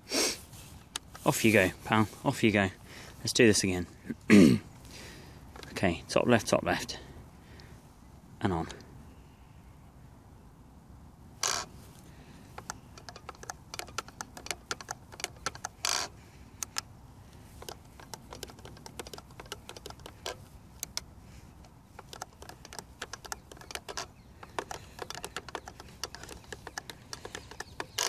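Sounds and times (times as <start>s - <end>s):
plastic joystick clicking: 11.4s - 11.7s, 12.5s - 16.9s, 17.6s - 28.0s.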